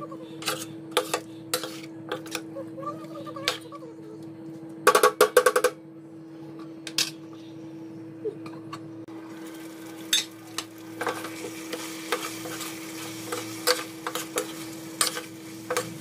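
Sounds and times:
spoon scraping metal pan: 0.4s - 2.4s
food sizzling: 9.1s - 16.0s.

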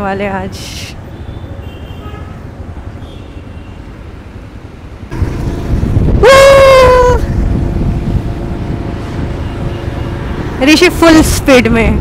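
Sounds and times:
wind and road rumble: 0.0s - 12.0s
vehicle horn: 1.3s - 2.4s.

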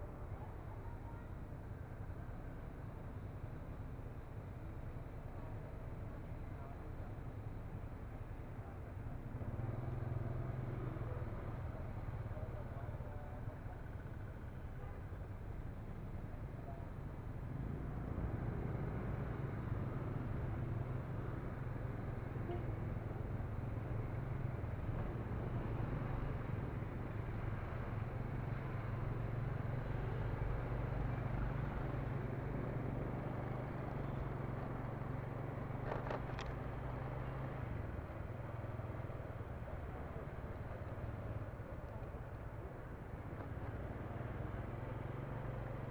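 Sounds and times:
road noise: 8.2s - 45.9s
brief clatter: 35.8s - 36.7s.

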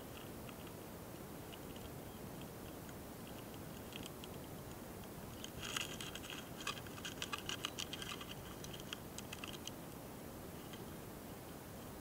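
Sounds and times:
beetles making tiny clicks: 1.5s - 9.8s.

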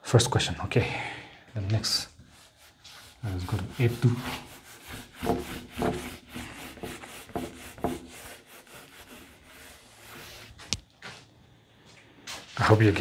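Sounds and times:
eraser rubbing whiteboard: 2.2s - 10.8s.

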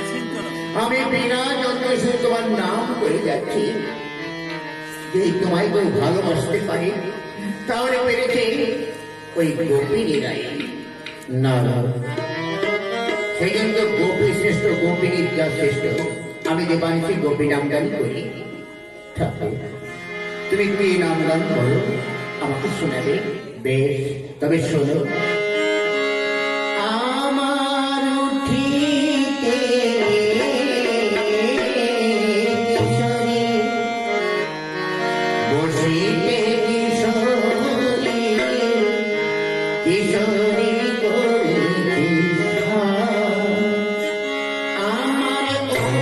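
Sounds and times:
long held instrumental notes: 0.0s - 46.0s
person singing devotional song: 24.8s - 46.0s.

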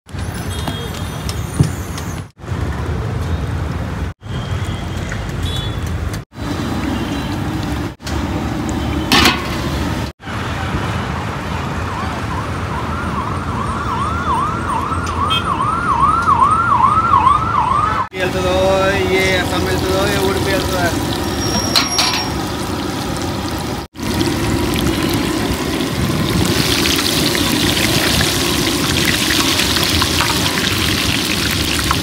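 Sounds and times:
outdoor street noise: 0.0s - 32.0s
siren sweeping up and down: 11.9s - 18.1s.

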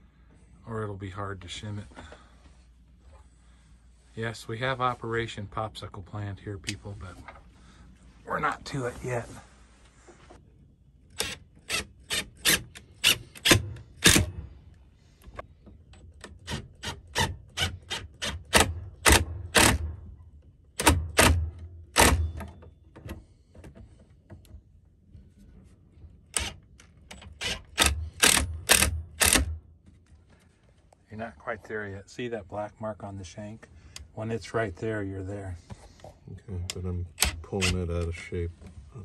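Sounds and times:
cordless driver driving screws: 26.3s - 29.5s.

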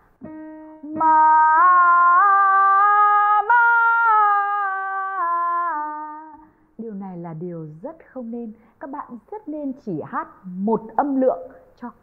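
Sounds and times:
woman singing a vocal scale: 0.8s - 6.4s.

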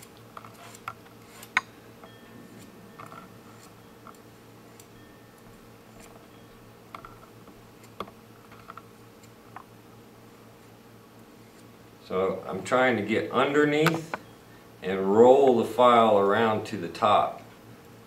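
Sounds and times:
file scraping metal wire: 0.0s - 1.7s.

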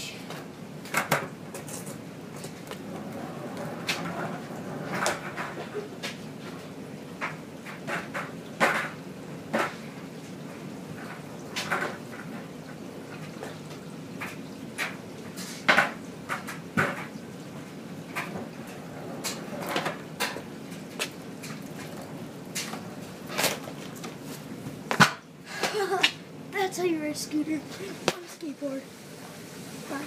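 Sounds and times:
skateboard clattering on hard floor: 0.9s - 6.6s, 7.2s - 9.9s, 11.0s - 12.5s, 14.2s - 17.2s, 18.1s - 24.2s, 24.9s - 25.2s.

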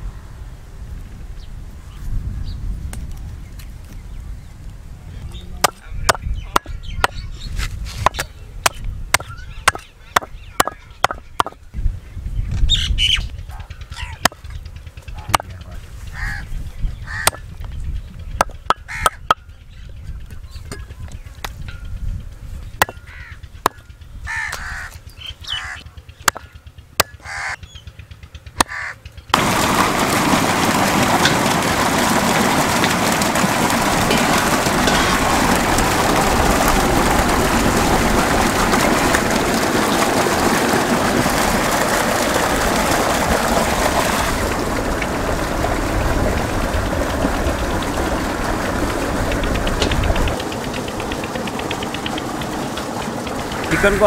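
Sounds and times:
bird calls: 5.2s - 29.1s
water gushing onto steel basins: 29.4s - 54.0s.

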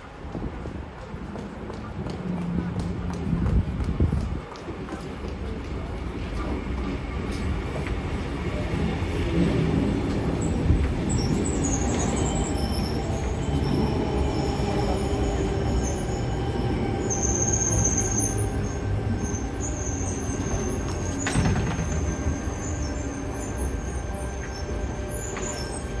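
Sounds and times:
train rumbling on rails: 0.0s - 26.0s
high wheel squeal: 10.4s - 26.0s.

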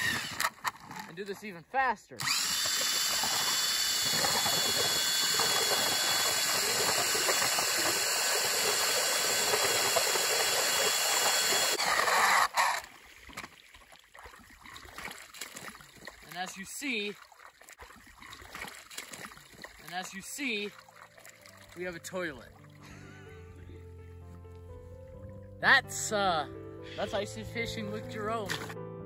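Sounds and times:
power ice auger drilling: 0.0s - 1.1s, 2.2s - 13.0s, 28.5s - 28.8s.

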